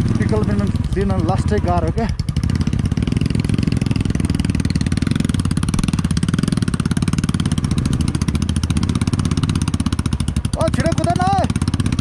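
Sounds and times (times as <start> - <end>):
rider talking: 0.0 - 2.2, 10.5 - 11.6
motorcycle engine throbbing: 0.0 - 12.0.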